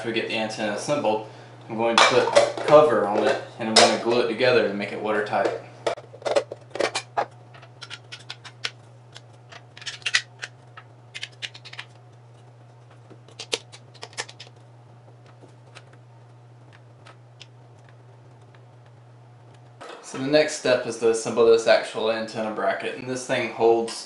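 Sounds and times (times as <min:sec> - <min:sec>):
steady low hum: 0:00.0 - 0:24.0
plastic parts and bolts clicking: 0:05.9 - 0:11.9.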